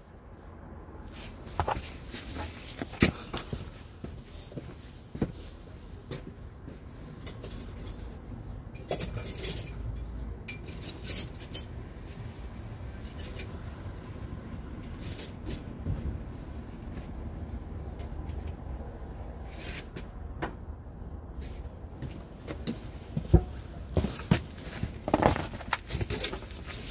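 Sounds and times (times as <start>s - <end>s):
metallic clinks of tools: 7.2s - 11.8s.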